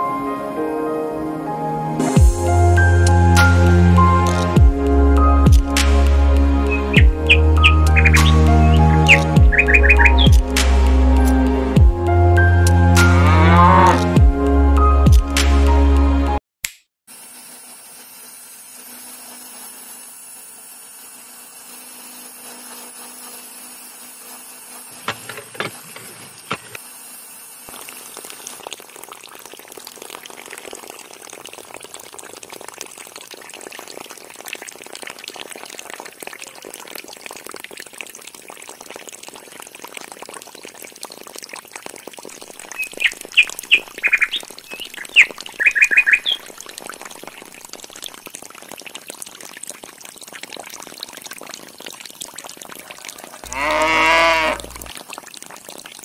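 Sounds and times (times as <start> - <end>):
water splashing into small pool: 2.4 - 14.2, 17.5 - 56.0
bird chirping: 6.7 - 10.4, 42.8 - 46.5.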